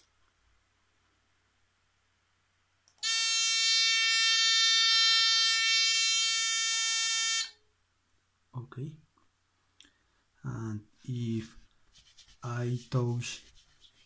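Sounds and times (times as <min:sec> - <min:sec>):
shrill electronic buzzer tone: 0:03.0 - 0:07.6.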